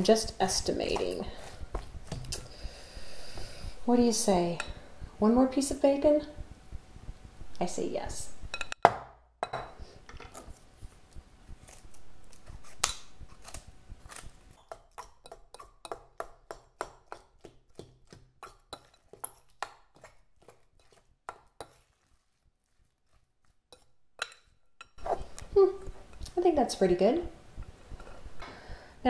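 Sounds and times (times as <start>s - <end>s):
hands mixing in glass bowl: 14.6s - 25.4s.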